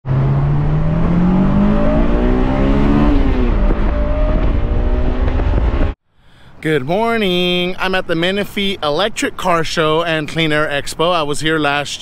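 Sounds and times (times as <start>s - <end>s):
car engine accelerating: 0.1s - 6.0s.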